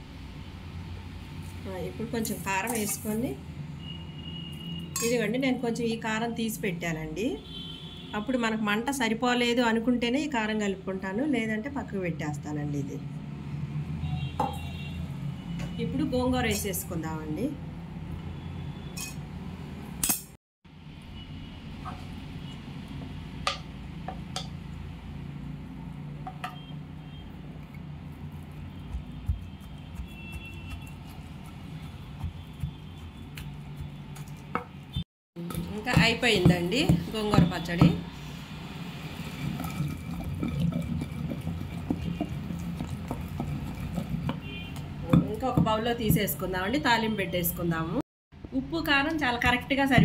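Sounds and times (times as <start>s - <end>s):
pestle mashing in stone mortar: 28.1s - 38.0s, 39.3s - 46.4s.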